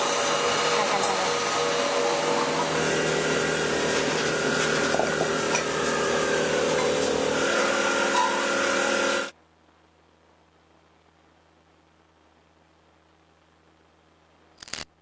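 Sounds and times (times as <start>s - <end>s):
workshop machinery whining and humming: 0.0s - 9.4s.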